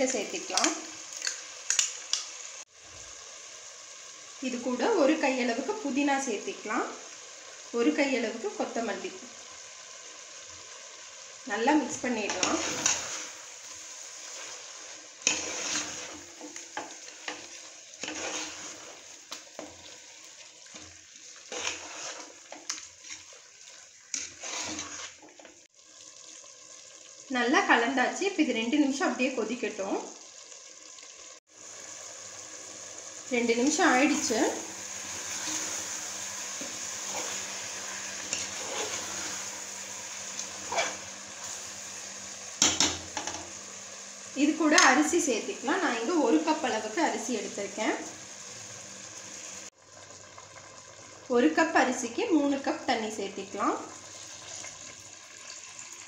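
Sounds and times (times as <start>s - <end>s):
food sizzling: 0.0s - 56.0s
spoon scraping metal pot: 12.2s - 13.3s, 15.2s - 19.0s, 20.8s - 23.4s, 24.1s - 25.5s, 36.6s - 39.5s, 40.4s - 41.1s
ladle stirring thick stew: 14.2s - 25.6s.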